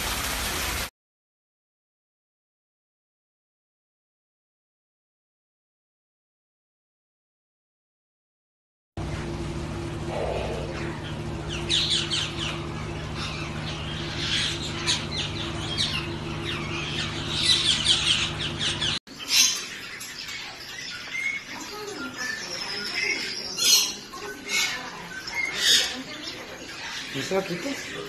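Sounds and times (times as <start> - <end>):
low hum: 9.0 - 19.0
birds chirping: 9.0 - 28.0
bird calls and squawks: 10.0 - 28.0.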